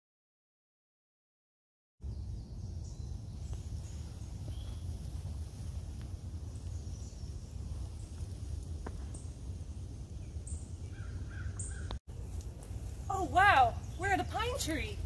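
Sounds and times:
faint bird chirps: 2.0 - 5.0, 9.0 - 12.0
low rumble: 2.0 - 14.0.

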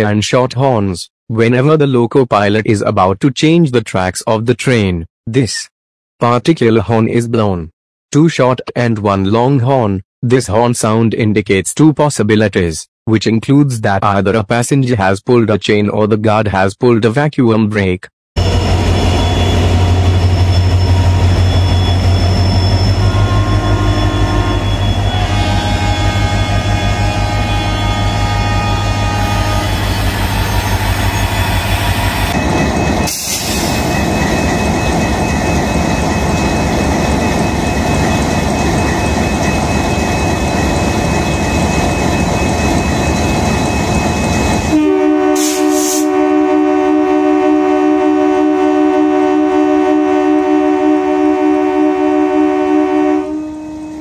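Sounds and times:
diesel locomotive engine humming: 18.4 - 54.0
locomotive air horn: 22.9 - 32.4, 44.7 - 54.0.

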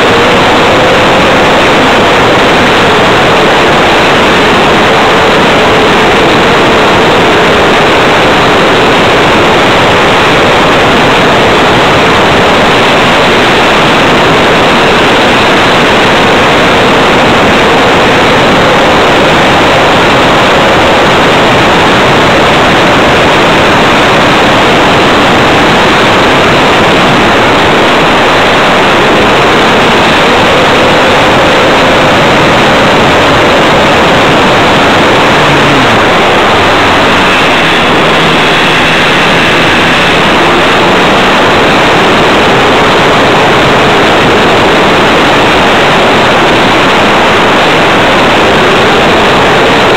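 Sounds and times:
model plane motor and airflow: 29.0 - 44.2.

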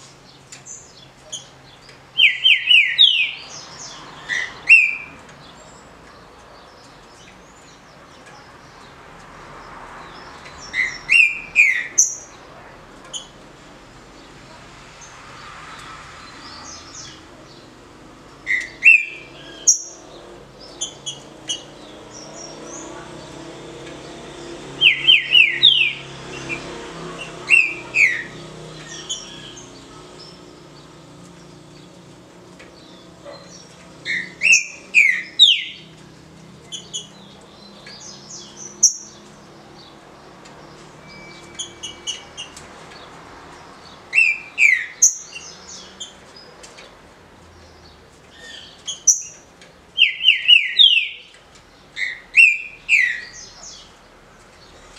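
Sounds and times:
soft high bird chirps: 0.0 - 8.5, 40.5 - 43.1, 50.0 - 54.0
bird whistling song: 2.2 - 3.4, 4.3 - 5.1, 18.5 - 20.0, 24.8 - 26.6, 34.1 - 35.8, 44.1 - 45.4, 50.0 - 51.3, 52.0 - 53.4.

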